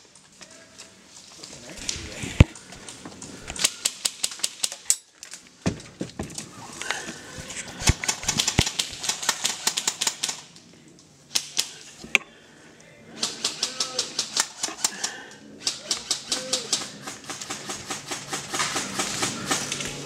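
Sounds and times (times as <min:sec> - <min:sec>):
airsoft rifle automatic bursts: 0:07.8 - 0:10.5.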